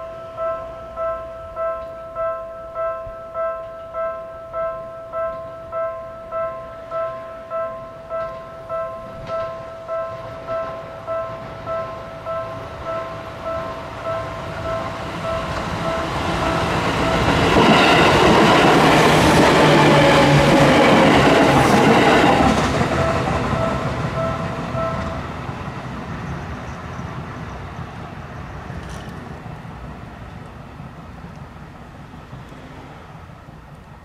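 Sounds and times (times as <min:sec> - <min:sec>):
level-crossing alarm bell ringing: 0:00.0 - 0:25.4
train wheels clattering over rails: 0:14.6 - 0:27.6, 0:28.4 - 0:30.5.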